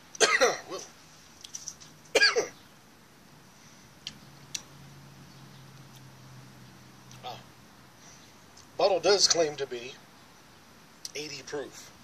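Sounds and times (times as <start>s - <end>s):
man coughing: 0.2s - 0.8s, 2.2s - 2.5s.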